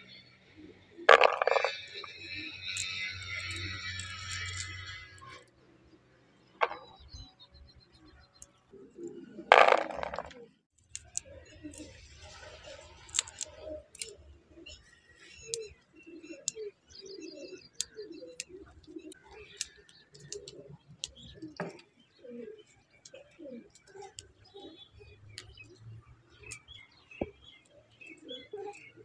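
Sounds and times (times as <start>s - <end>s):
birds calling and chirping: 0.0s - 29.0s
sharp clicks: 1.1s - 5.6s, 9.5s - 12.0s, 13.0s - 14.2s, 17.7s - 21.8s.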